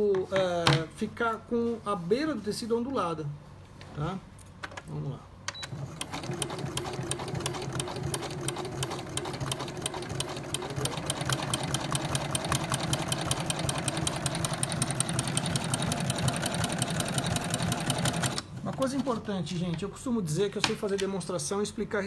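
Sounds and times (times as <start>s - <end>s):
sewing machine motor hum: 5.6s - 19.1s
sewing machine needle clatter: 5.6s - 19.1s.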